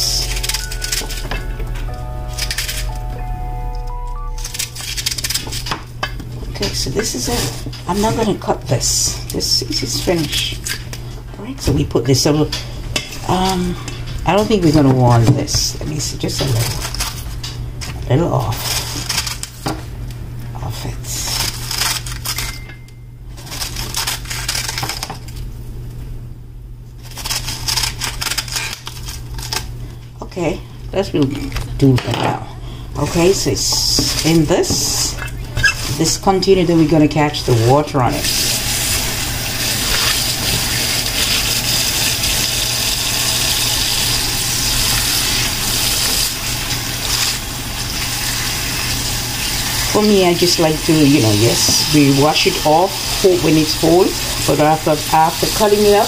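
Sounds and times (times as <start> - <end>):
steady low hum: 0.0 - 55.8
hands turning wet cabbage: 4.4 - 5.8, 23.4 - 25.4, 27.0 - 29.6, 38.1 - 56.0
knife shredding cabbage: 4.5 - 5.8, 23.4 - 25.2, 27.0 - 29.7.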